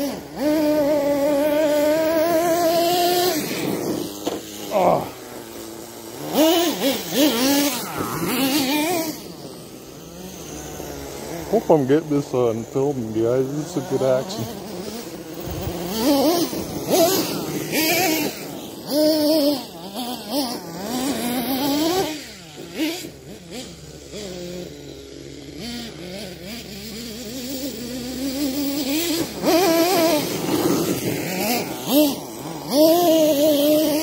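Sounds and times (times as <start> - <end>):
nitro engine revving: 0.0 - 34.0.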